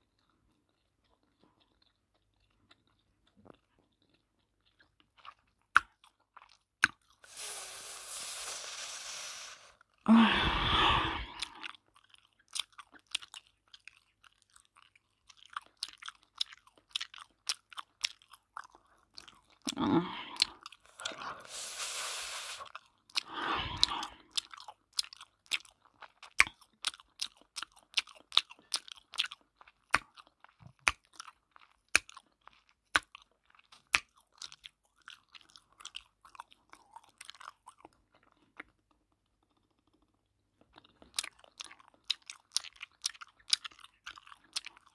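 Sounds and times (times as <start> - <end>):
bright hiss: 7.3 - 9.8, 21.5 - 22.6.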